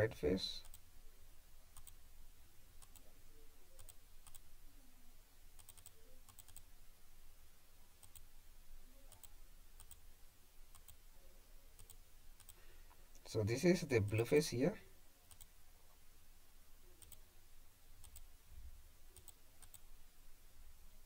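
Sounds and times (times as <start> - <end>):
faint low hum: 0.0 - 21.0
computer mouse clicking: 0.6 - 0.8, 1.8 - 2.0, 2.8 - 3.1, 3.8 - 4.4, 5.6 - 6.7, 8.0 - 8.3, 9.1 - 10.0, 10.7 - 11.0, 11.8 - 12.6, 15.3 - 15.5, 17.0 - 17.2, 18.0 - 18.3, 19.1 - 19.9.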